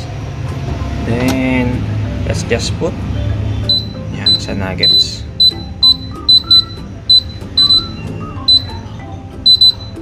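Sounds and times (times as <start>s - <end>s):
background music: 0.0s - 10.0s
short high electronic beeps: 3.6s - 10.0s.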